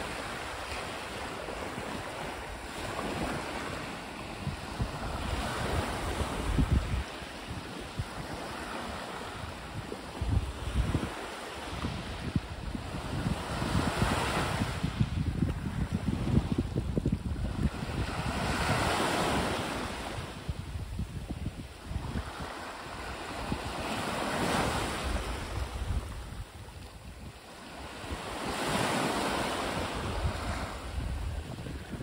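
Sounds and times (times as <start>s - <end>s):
small waves breaking on beach: 0.0s - 32.0s
wind buffeting microphone: 0.0s - 32.0s.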